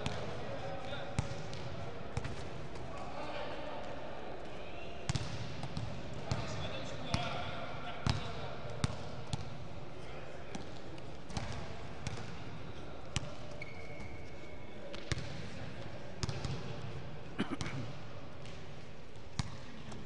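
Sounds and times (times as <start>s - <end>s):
basketballs bouncing on gym floor: 5.1s - 6.4s, 8.0s - 9.4s.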